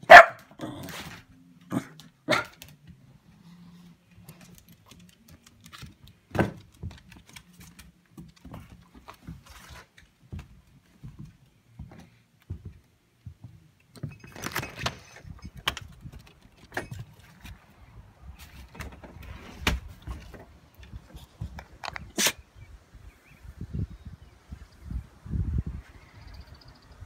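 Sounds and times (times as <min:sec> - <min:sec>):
footsteps on wooden floor: 0:08.1 - 0:14.2.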